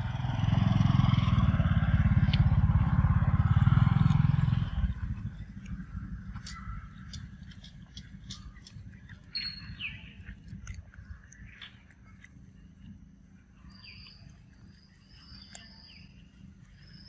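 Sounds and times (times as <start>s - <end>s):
monkey chewing fruit: 1.9s - 13.0s
bird chirps: 4.4s - 17.0s.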